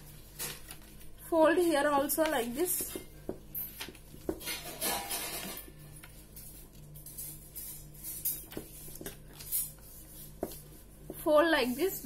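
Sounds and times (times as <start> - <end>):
paper rustling and crinkling: 0.0 - 1.1.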